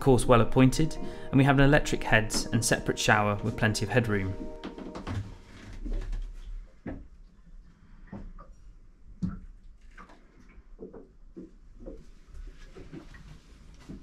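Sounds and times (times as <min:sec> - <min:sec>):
low hiss: 0:00.0 - 0:05.6.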